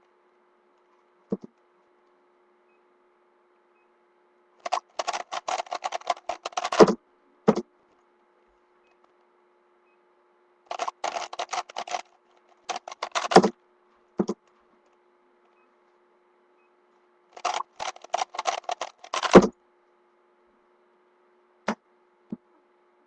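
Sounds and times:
puzzle cube layers clicking: 4.6 - 7.6, 10.7 - 13.5, 17.4 - 19.5.

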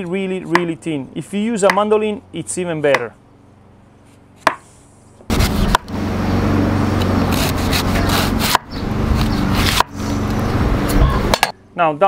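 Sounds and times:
knife slicing on wooden board: 5.3 - 5.9, 7.3 - 10.0.

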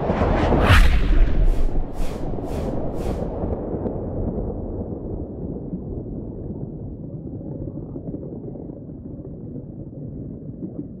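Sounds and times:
low rumbling noise: 0.0 - 7.6.

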